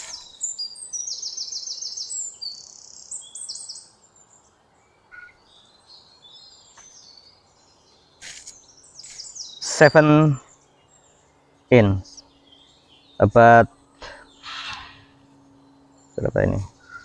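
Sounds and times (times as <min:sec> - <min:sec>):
small bird chirping: 0:00.0 - 0:17.0.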